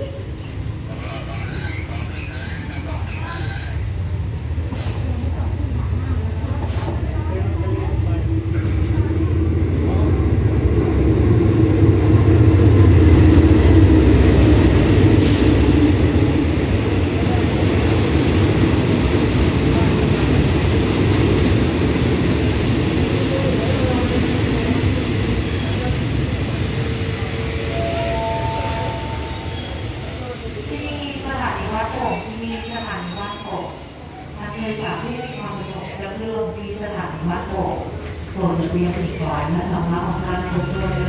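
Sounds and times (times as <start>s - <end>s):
high-pitched brake squeal: 24.7s - 36.2s.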